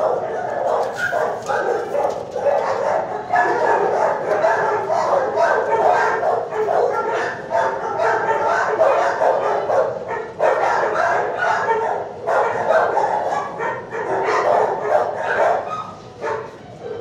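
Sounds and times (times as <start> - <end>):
many dogs barking: 0.0 - 17.0.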